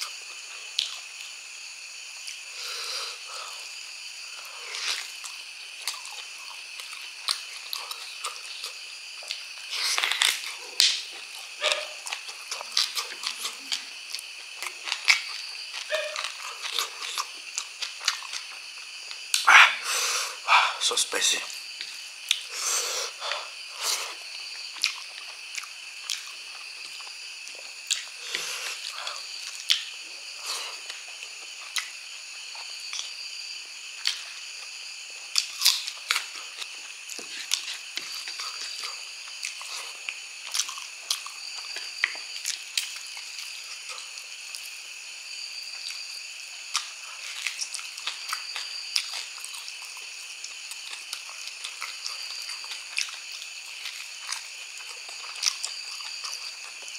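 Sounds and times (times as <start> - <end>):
chewing and wet mouth smacks: 0.8 - 1.3, 4.7 - 19.5, 24.5 - 29.9, 30.8 - 33.1, 34.0 - 34.7, 35.3 - 44.8, 46.6 - 56.9.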